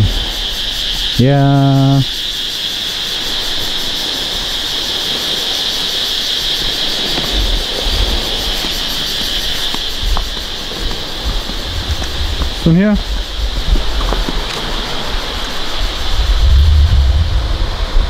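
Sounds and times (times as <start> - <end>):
insect chorus buzzing: 0.0 - 18.0
low bumps: 7.0 - 18.0.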